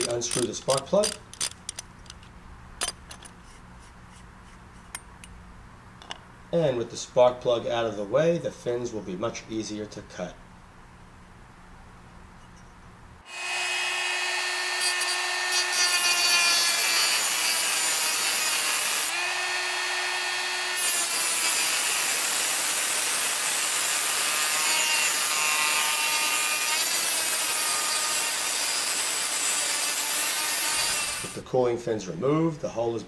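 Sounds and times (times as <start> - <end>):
cut-off wheel grinding metal: 0.0 - 2.2, 13.3 - 31.4
rotary tool motor whine: 13.3 - 31.4.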